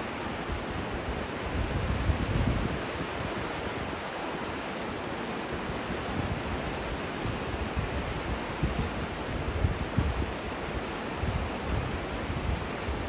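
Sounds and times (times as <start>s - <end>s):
river rushing: 0.0s - 13.0s
wind buffeting microphone: 0.5s - 3.3s, 7.2s - 10.4s.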